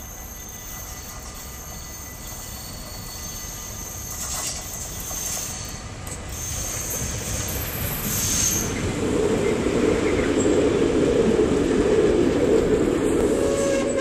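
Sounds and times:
high wheel squeal: 0:00.0 - 0:08.8, 0:13.3 - 0:14.0
railbus diesel engine passing: 0:00.0 - 0:14.0.

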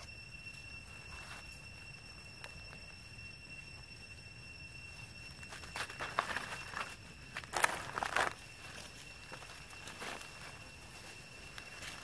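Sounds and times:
high-pitched whine: 0:00.0 - 0:12.0
dry leaves crackling: 0:04.9 - 0:12.0.

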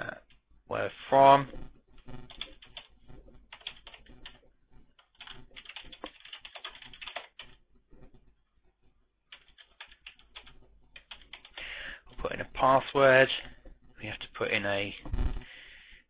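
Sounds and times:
typing on computer keyboard: 0:02.0 - 0:07.6, 0:09.3 - 0:11.6.

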